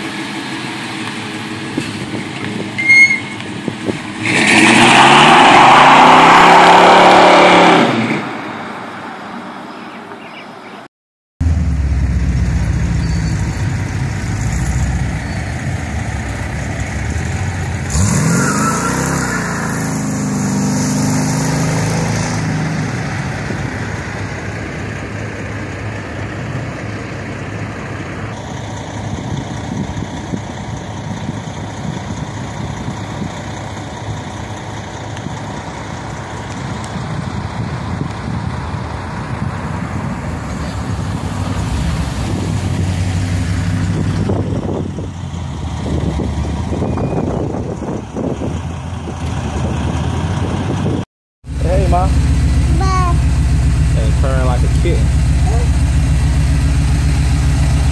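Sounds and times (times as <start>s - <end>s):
pickup engine idling and revving: 0.0s - 9.0s, 11.4s - 57.9s.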